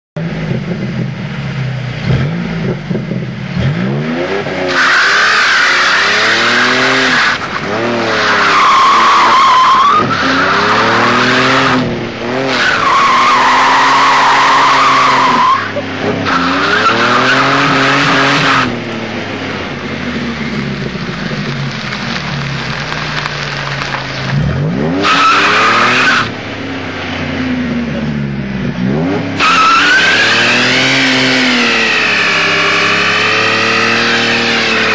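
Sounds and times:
car engine revving: 0:00.2 - 0:34.9
tires squealing: 0:04.4 - 0:18.9, 0:19.7 - 0:26.4, 0:28.9 - 0:34.9.

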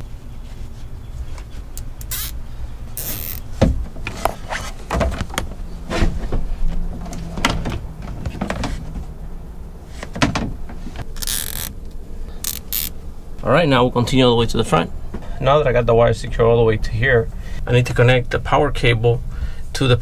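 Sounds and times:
zip tie rasping: 0:01.8 - 0:02.4, 0:03.0 - 0:03.5, 0:11.1 - 0:11.8, 0:12.4 - 0:13.0
cable handling rustles and clicks: 0:10.0 - 0:12.9.

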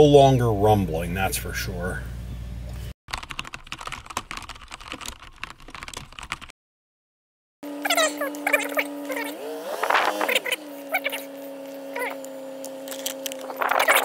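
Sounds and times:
rapid keyboard typing clicks: 0:03.1 - 0:06.5.

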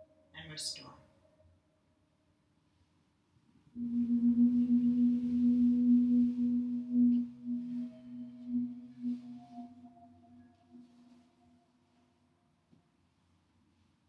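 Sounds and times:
singing bowl ringing: 0:03.8 - 0:11.7.

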